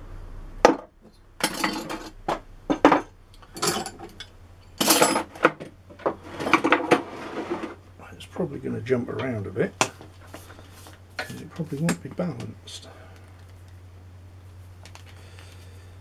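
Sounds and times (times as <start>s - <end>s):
low background hum: 0.0s - 16.0s
metal tools clattering on workbench: 1.4s - 7.7s.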